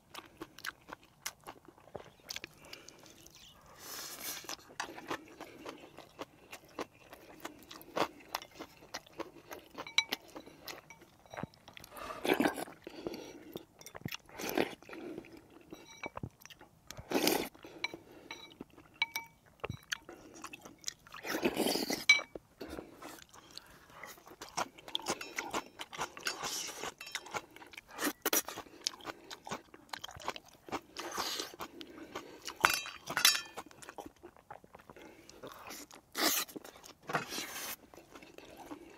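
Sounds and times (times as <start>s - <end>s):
chewing and crunching: 0.0s - 38.9s
slurping soup from spoon: 21.2s - 24.4s, 35.6s - 38.9s.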